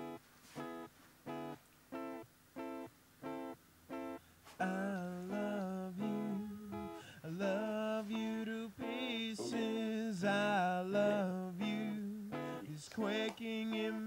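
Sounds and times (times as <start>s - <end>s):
person singing: 4.6s - 14.0s
strummed acoustic guitar: 8.8s - 14.0s.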